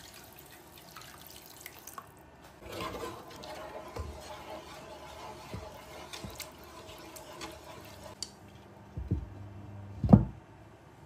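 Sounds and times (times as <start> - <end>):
wooden spoon stirring sauce: 2.6 - 8.3.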